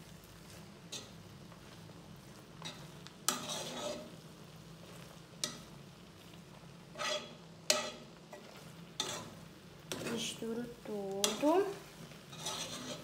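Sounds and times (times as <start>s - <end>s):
rice sizzling: 0.0s - 13.0s
spatula scraping metal pot: 2.6s - 4.2s, 6.9s - 10.4s, 12.2s - 13.0s.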